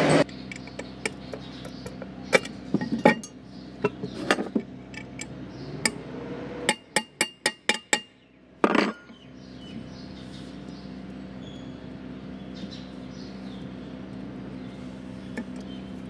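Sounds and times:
scraping rattle: 0.3s - 6.0s.

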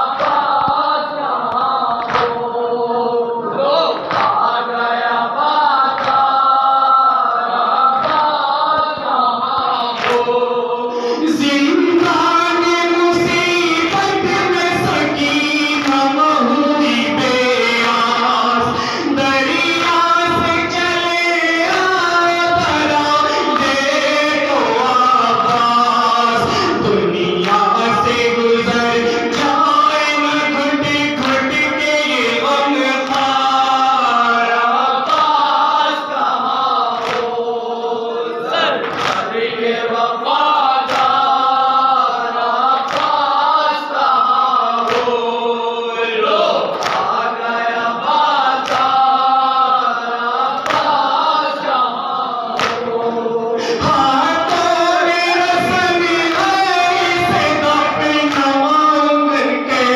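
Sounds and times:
men chanting a lament: 0.0s - 59.9s
chest-beating slaps: 2.0s - 2.4s, 9.9s - 10.4s, 38.8s - 39.4s, 46.7s - 47.2s.

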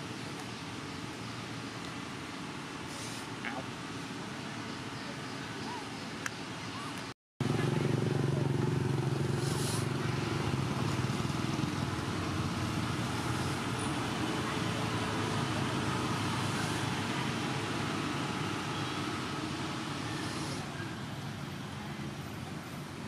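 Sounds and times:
motor traffic rumble: 0.0s - 23.0s.

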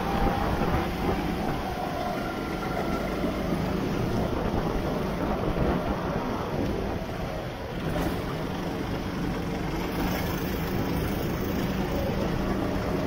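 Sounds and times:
wind rushing: 0.0s - 7.9s
go-kart engine: 0.0s - 13.0s.

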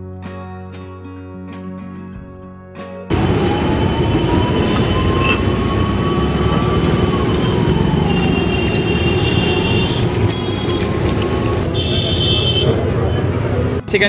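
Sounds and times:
street traffic engines and tyres: 3.1s - 14.0s.

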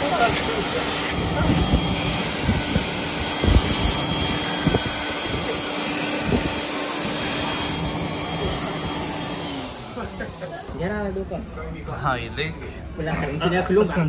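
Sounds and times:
hand dryer blowing air: 0.0s - 10.7s.

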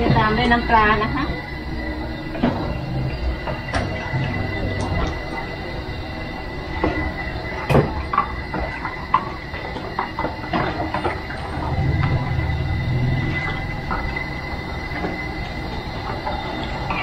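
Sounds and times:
low rumble: 11.4s - 16.1s.

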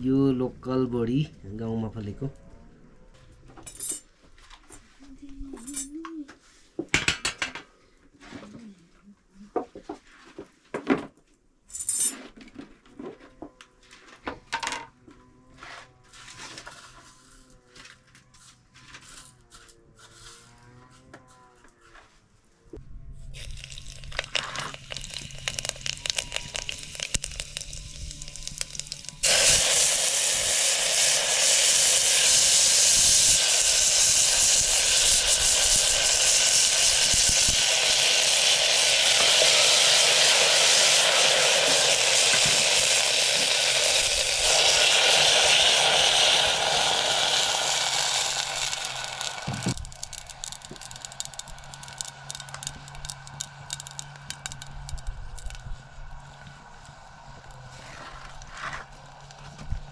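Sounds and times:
loud sizzling hiss: 23.3s - 55.6s
light crackling in a pan: 23.3s - 59.9s.

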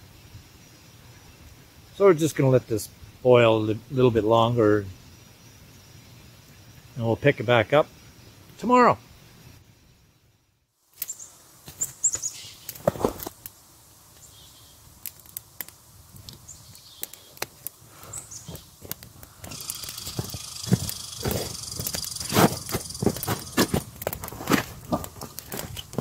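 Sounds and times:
twig fire crackling and popping: 10.8s - 26.0s
footsteps crunching in snow: 18.4s - 26.0s.

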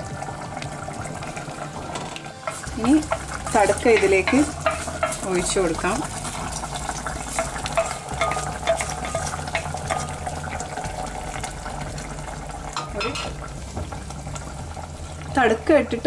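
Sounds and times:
hot oil sizzling and crackling: 0.0s - 16.0s
wooden spoon stirring curry: 2.4s - 12.1s.

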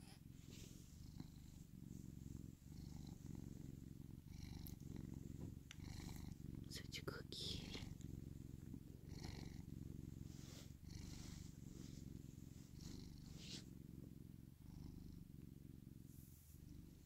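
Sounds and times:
soft rustles: 0.0s - 6.7s, 7.4s - 13.8s
cat purring: 0.0s - 17.0s.

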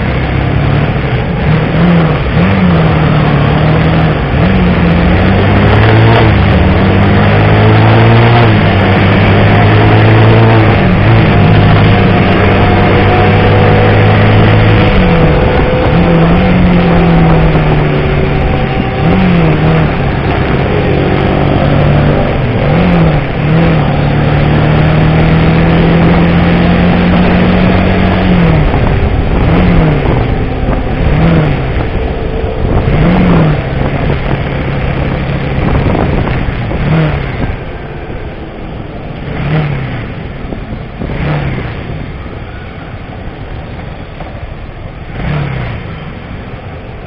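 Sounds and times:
motorcycle engine revving: 0.0s - 47.0s
road noise rush: 0.0s - 47.0s.

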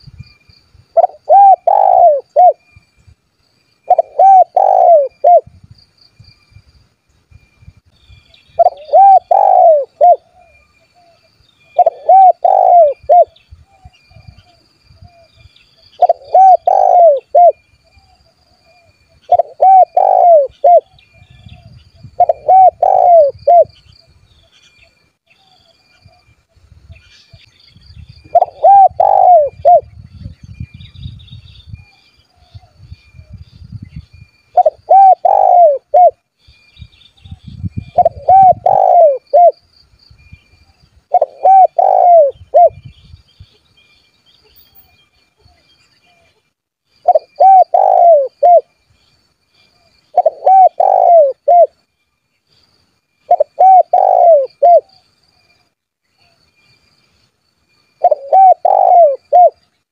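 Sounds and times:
faint high-pitched chirping: 0.0s - 59.9s
dove cooing: 1.0s - 2.6s, 3.9s - 5.5s, 8.6s - 11.2s, 11.8s - 13.4s, 16.0s - 17.6s, 19.3s - 21.0s, 21.6s - 23.7s, 28.2s - 29.9s, 34.6s - 36.2s, 37.9s - 39.6s, 41.1s - 42.8s, 47.0s - 48.7s, 50.1s - 51.7s, 53.3s - 55.0s, 58.0s - 59.6s.

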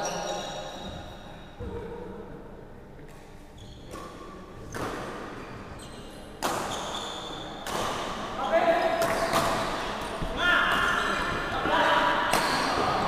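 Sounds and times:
rackets hitting shuttlecock: 6.4s - 7.0s, 7.6s - 8.2s, 9.0s - 11.4s, 12.2s - 13.0s.

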